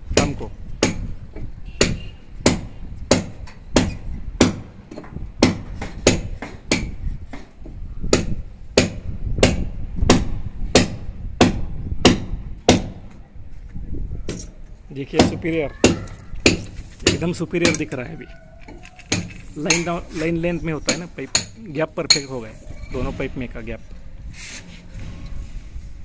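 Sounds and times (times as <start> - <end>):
hammer blows on a wall: 0.1 - 13.1.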